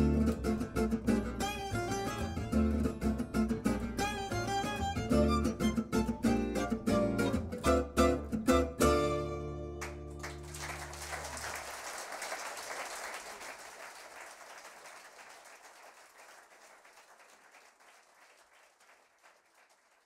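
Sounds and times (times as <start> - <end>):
audience applause: 9.8 - 20.0.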